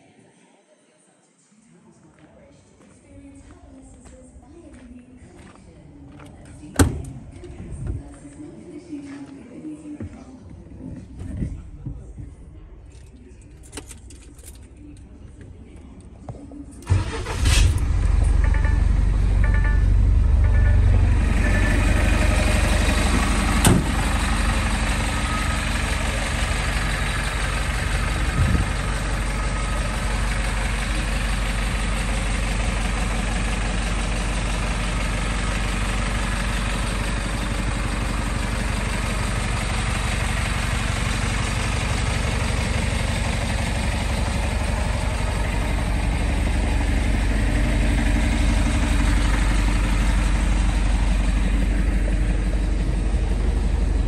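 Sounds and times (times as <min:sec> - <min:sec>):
diesel truck engine idling: 0:14.6 - 0:54.0.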